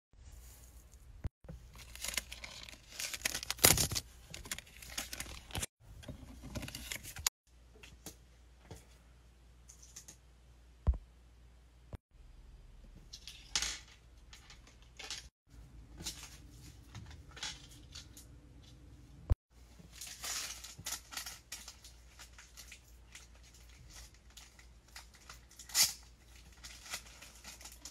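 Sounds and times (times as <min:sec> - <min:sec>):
paper rustling: 0:01.6 - 0:05.7.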